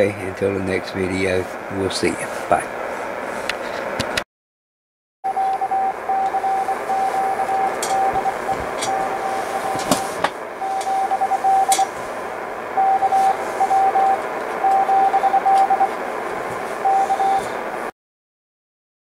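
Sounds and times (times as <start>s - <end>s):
radio band hiss: 0.0s - 4.2s, 5.3s - 17.9s
static crackles: 0.0s - 4.2s, 5.3s - 17.9s
morse code tone: 5.3s - 12.0s, 12.7s - 16.0s, 16.8s - 17.6s.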